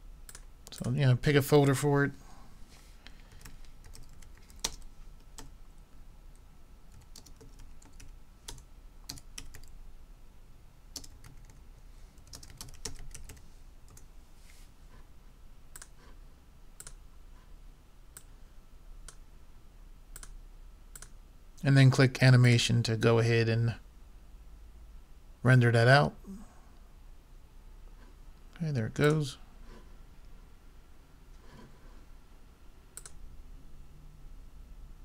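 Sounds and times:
computer keyboard typing: 3.3s - 5.5s, 6.9s - 9.8s, 10.9s - 11.6s, 12.2s - 14.1s.

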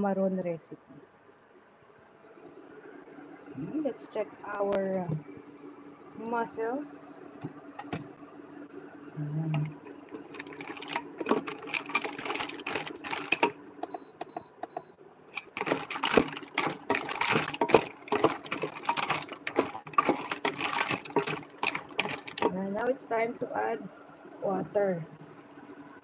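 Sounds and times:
mussel shells clattering in pot: 9.7s - 13.6s, 15.3s - 22.9s.

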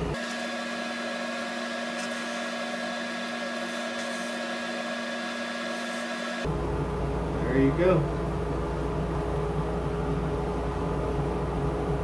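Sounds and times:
wood lathe motor whine: 0.2s - 6.5s.

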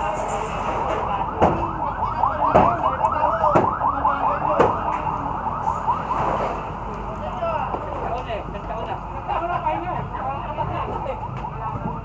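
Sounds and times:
hammer knocks: 2.5s - 2.8s, 3.5s - 3.8s.

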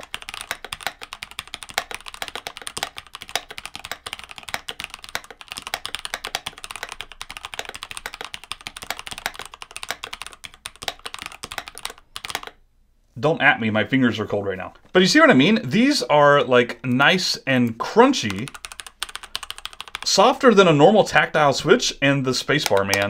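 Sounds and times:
mechanical keyboard typing: 0.0s - 12.6s, 18.2s - 20.2s, 22.5s - 23.0s.

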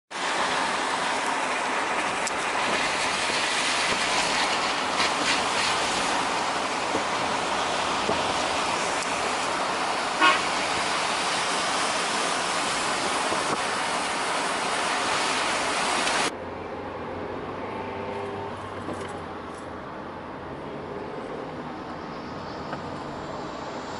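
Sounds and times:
road and wind noise inside car: 0.1s - 23.9s
car horn toot: 10.2s - 10.6s.

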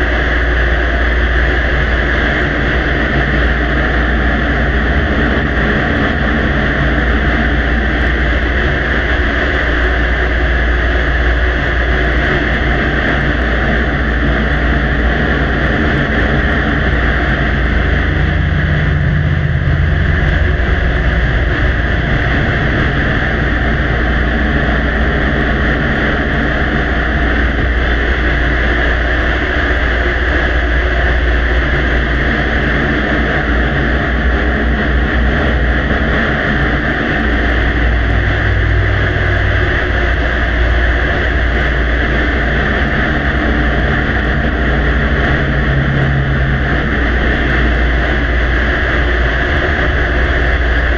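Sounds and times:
loud steady rushing noise: 0.0s - 50.9s
low hum: 0.0s - 50.9s.

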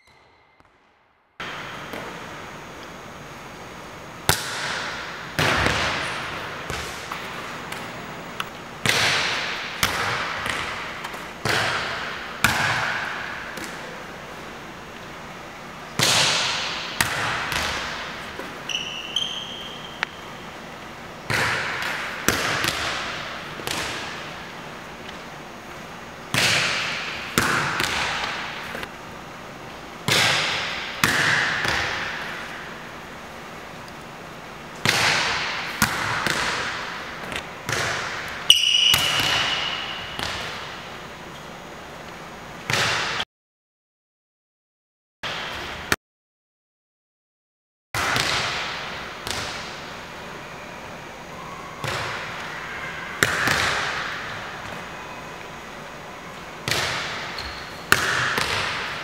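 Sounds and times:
volleyball slaps echoing in gym: 0.0s - 2.9s, 3.5s - 29.0s, 30.0s - 34.0s, 34.6s - 41.1s, 42.6s - 43.2s, 48.0s - 50.2s, 51.8s - 55.2s, 56.5s - 59.0s
volleyball being struck: 4.3s - 7.9s, 8.8s - 13.8s, 16.0s - 18.2s, 30.1s - 32.4s, 37.7s - 40.8s
short squeaks: 18.7s - 20.0s.

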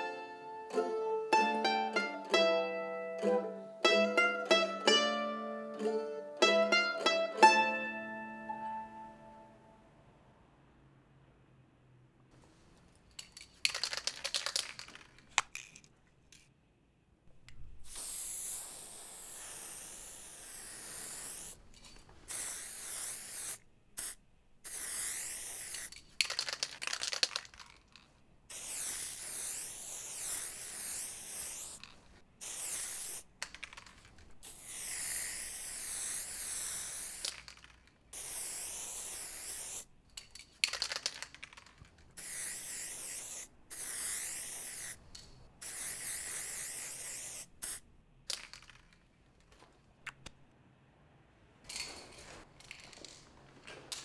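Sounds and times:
spray can rattling clicks: 13.1s - 16.5s, 17.4s - 50.4s, 51.7s - 53.3s
aerosol spray hissing: 17.8s - 21.6s, 22.3s - 26.0s, 28.5s - 31.8s, 32.4s - 33.3s, 34.4s - 37.4s, 38.2s - 39.9s, 42.2s - 45.0s, 45.6s - 47.8s.

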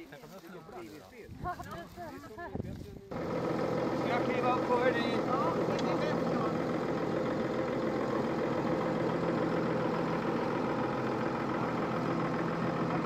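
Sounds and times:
tractor diesel engine idling: 3.1s - 13.0s.

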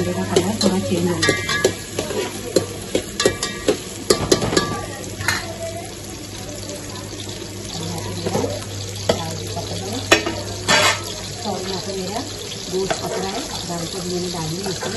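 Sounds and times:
onions sizzling in hot oil: 0.0s - 14.9s
metal spatula scraping a pot: 0.6s - 2.4s, 10.6s - 11.2s.

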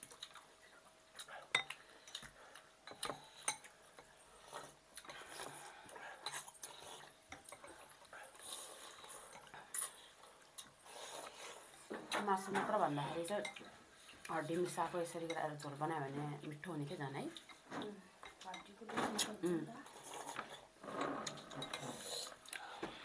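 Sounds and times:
eating and slurping: 0.1s - 11.9s, 19.2s - 22.8s
cutlery clinking against glass bowls: 1.5s - 1.8s, 21.3s - 22.0s.

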